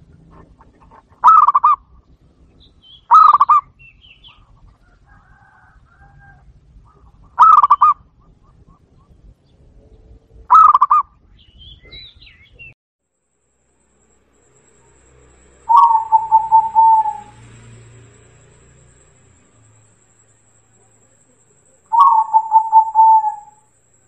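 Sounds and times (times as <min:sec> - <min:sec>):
small birds chirping faintly: 0:00.0 - 0:24.0
dove cooing: 0:00.2 - 0:01.8, 0:03.1 - 0:03.6, 0:06.9 - 0:09.0, 0:10.5 - 0:11.0, 0:14.7 - 0:19.5, 0:20.6 - 0:23.7.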